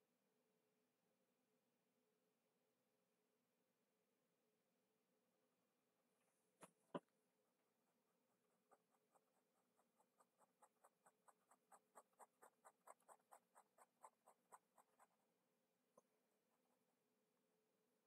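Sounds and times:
ballpoint pen scratching on paper: 6.6 - 17.0.

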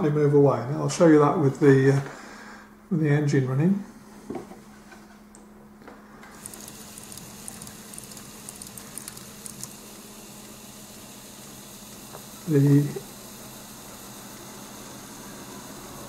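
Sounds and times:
small electric motor whirring: 6.3 - 16.0
gears ticking: 6.4 - 13.3.

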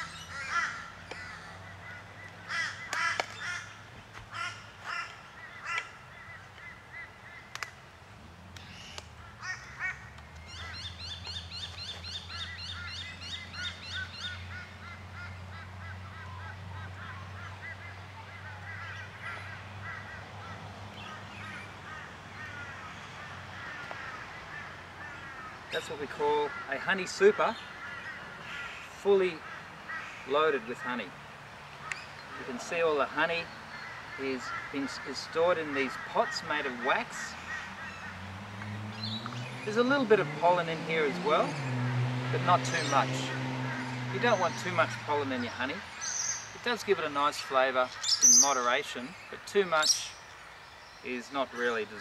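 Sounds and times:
crow-like cawing: 0.0 - 7.5, 9.2 - 10.9, 12.4 - 31.0, 33.7 - 38.2
rapid bird chattering: 47.4 - 50.3.

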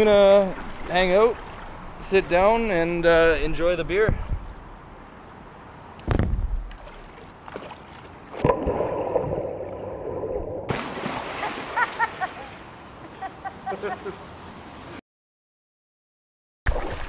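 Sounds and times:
water splashing: 0.0 - 2.9, 6.1 - 13.1, 16.7 - 17.0
splash into pool: 6.1 - 12.6, 16.7 - 17.0
underwater churning and bubbling: 8.4 - 10.7.

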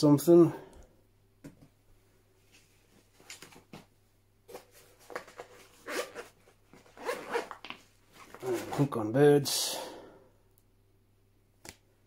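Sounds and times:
fabric bag rustling and scraping: 4.6 - 9.0.

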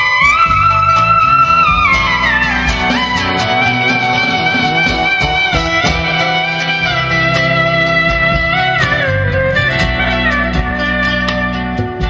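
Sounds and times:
clarinet melody: 0.0 - 12.0
drum kit: 0.0 - 12.0
plucked zither strings: 0.0 - 12.0.

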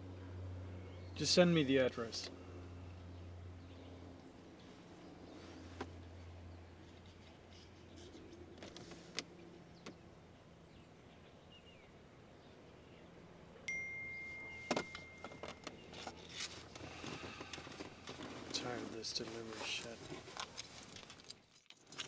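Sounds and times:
phone message ding: 13.7 - 15.9.

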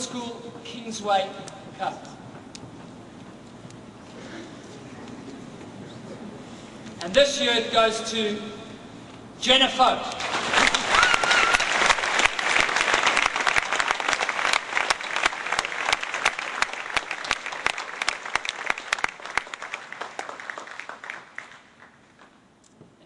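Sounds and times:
audience applauding: 10.2 - 22.4.

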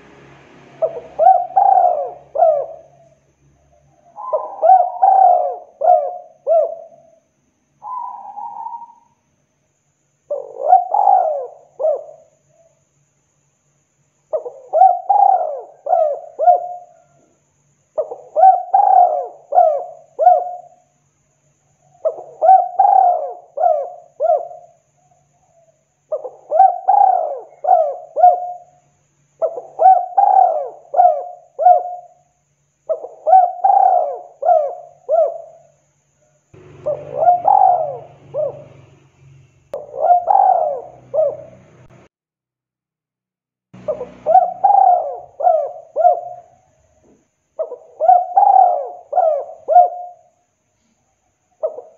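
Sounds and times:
dove cooing: 0.8 - 7.2, 7.8 - 9.2, 10.3 - 12.7, 14.3 - 17.3, 18.0 - 20.8, 21.8 - 28.8, 29.4 - 32.2, 32.9 - 35.7, 36.6 - 39.0, 39.8 - 41.9, 43.8 - 46.8, 47.6 - 50.4, 51.6 - 51.9.

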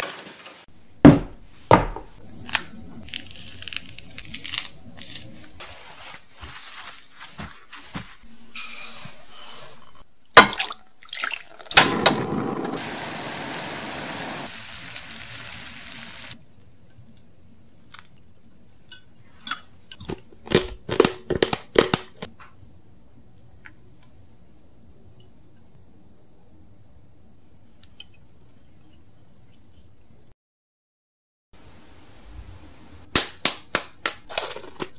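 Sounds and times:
water pouring into a saucepan: 10.5 - 11.8, 12.8 - 16.4.

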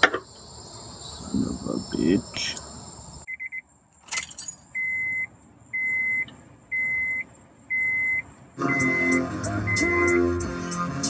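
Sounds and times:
car warning chime beeping: 3.3 - 3.7, 4.7 - 10.4
keys jangling in ignition: 3.9 - 4.8
music from car stereo: 7.8 - 11.0.

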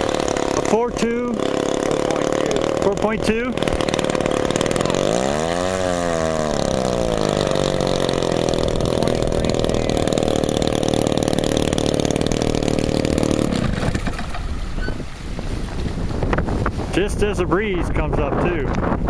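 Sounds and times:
model plane two-stroke engine running: 0.0 - 14.7.

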